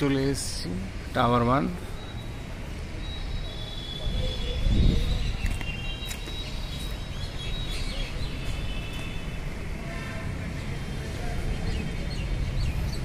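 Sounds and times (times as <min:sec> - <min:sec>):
high bird chirps: 0:03.0 - 0:09.2.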